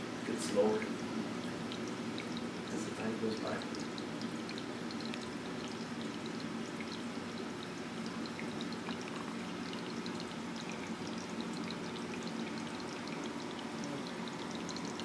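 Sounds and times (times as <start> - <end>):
low steady hum: 0.0 - 15.0
water pouring and trickling: 0.3 - 15.0
small bubbly ticks: 0.9 - 15.0.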